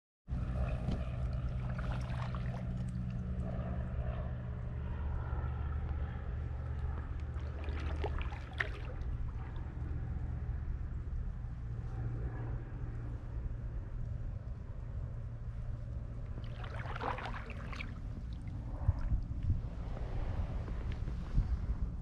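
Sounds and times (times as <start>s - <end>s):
low droning hum: 0.3s - 22.0s
paddle splashes and drips: 0.9s - 3.3s, 6.9s - 9.9s, 16.4s - 19.2s.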